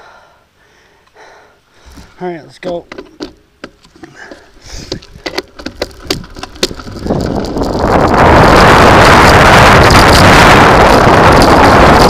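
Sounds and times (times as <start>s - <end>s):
bicycle tyres crunching gravel: 3.8s - 12.0s
wind rushing on microphone: 4.7s - 12.0s.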